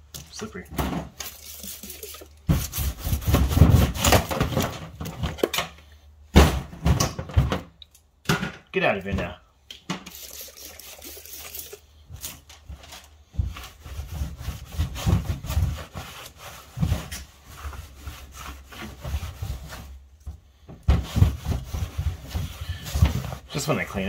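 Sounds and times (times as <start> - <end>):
cloth rubbing on workbench: 13.4 - 20.1.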